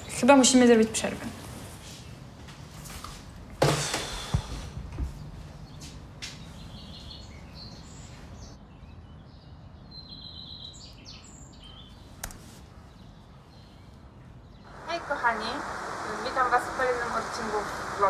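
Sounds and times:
small birds chirping: 0:05.0 - 0:18.0
loud noisy burst: 0:14.7 - 0:18.0.

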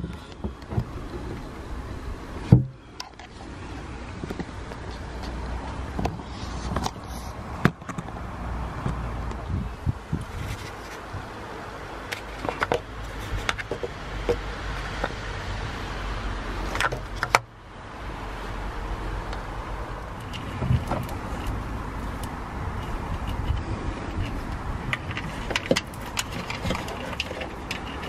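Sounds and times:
low outdoor rumble: 0:00.0 - 0:28.0
hands clicking on engine parts: 0:12.0 - 0:15.2, 0:16.6 - 0:17.5, 0:20.1 - 0:28.0.

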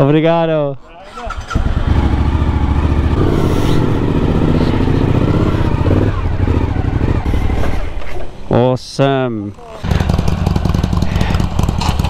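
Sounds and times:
motorcycle engine pulling away: 0:01.0 - 0:08.2, 0:09.8 - 0:12.0.

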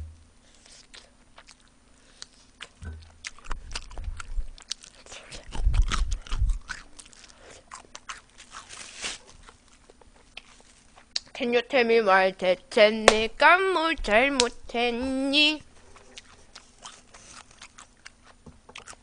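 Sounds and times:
heavy low thuds: 0:00.0 - 0:00.3
wet chewing with crisp crackles: 0:00.5 - 0:11.5, 0:15.5 - 0:19.0.

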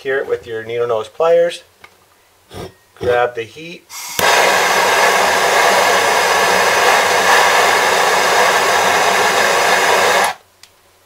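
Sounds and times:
gas torch hissing: 0:03.9 - 0:10.4.

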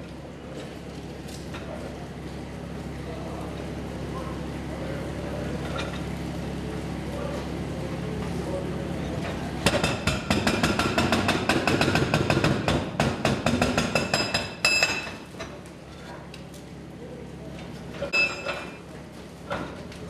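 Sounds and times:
excavator engine hum: 0:00.0 - 0:10.6
hydraulic breaker hammering rock: 0:09.6 - 0:15.2.

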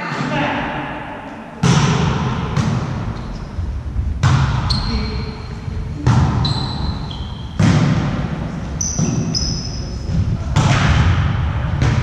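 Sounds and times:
volleyball smacks echoing: 0:01.6 - 0:03.1, 0:07.5 - 0:09.3, 0:10.5 - 0:12.0
shoes squeaking on court: 0:04.6 - 0:05.3, 0:06.0 - 0:07.6, 0:08.8 - 0:10.1.

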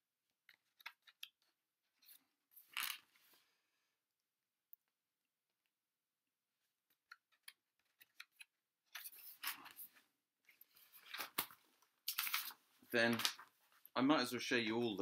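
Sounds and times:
paper rustling: 0:07.3 - 0:13.9.

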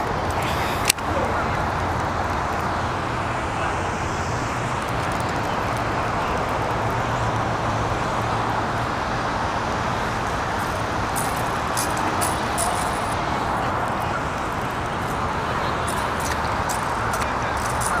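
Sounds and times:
steady rushing noise: 0:00.0 - 0:18.0.

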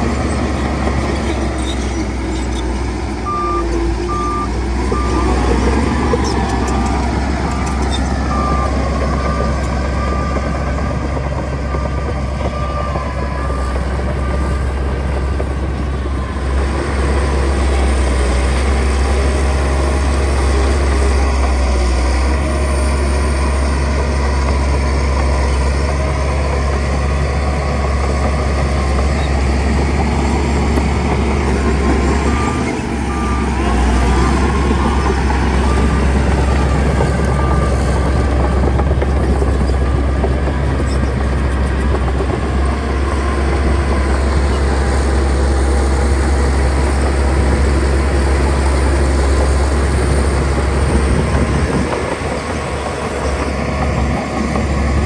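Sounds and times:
heavy diesel machinery rumbling: 0:00.0 - 0:55.0
reversing alarm beeps: 0:03.2 - 0:05.6, 0:31.6 - 0:38.5.

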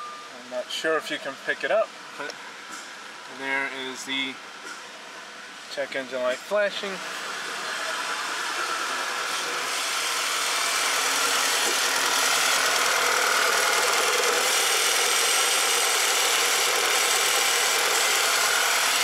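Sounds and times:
engine idling roughly: 0:08.0 - 0:19.0.

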